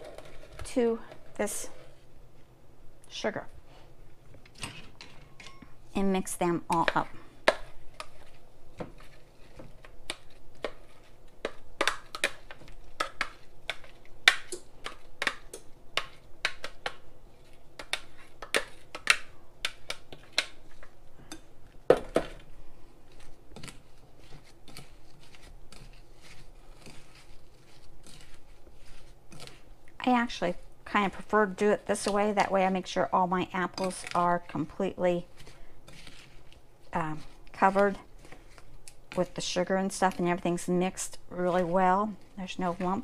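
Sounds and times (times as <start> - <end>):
spatula scraping and knocking: 6.7 - 20.9, 23.1 - 29.7, 33.6 - 40.6.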